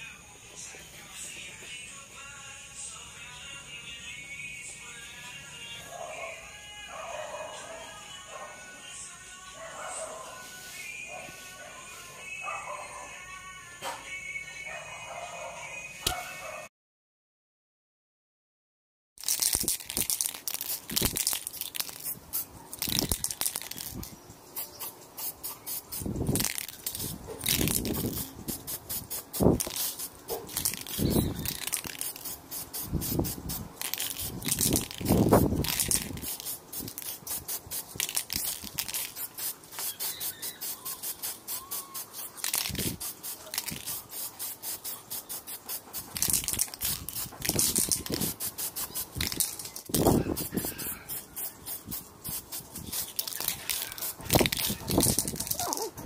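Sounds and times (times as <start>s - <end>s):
aerosol spray can hissing: 19.2s - 55.9s.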